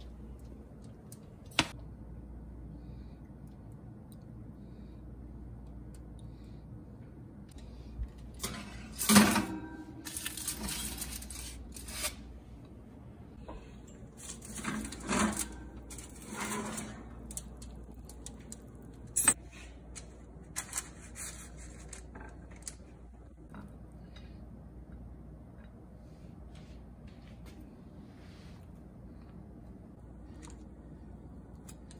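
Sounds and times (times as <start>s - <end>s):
metal baking tray scraping on oven racks: 8.4s - 12.2s, 14.2s - 17.6s.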